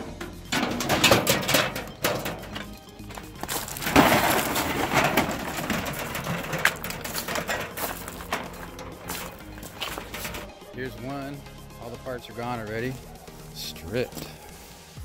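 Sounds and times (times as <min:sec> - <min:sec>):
wheelbarrow wheel crunching gravel: 0:00.0 - 0:13.1
faint background music: 0:00.0 - 0:15.0
footsteps on gravel: 0:01.0 - 0:10.6, 0:14.1 - 0:14.7.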